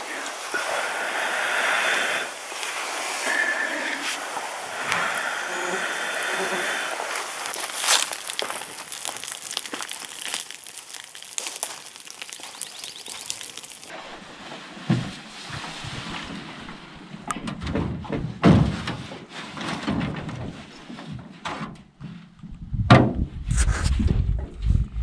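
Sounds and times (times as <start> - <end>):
campfire crackling: 0.0 - 13.9.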